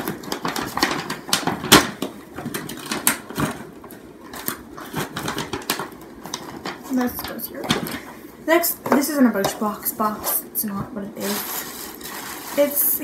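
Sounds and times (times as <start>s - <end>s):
gift paper crinkling: 4.3s - 8.0s, 11.2s - 13.0s.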